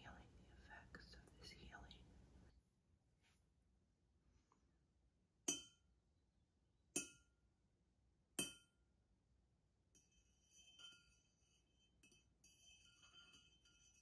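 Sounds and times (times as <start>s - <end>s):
spoon clinking against glass jar: 10.0s - 14.0s.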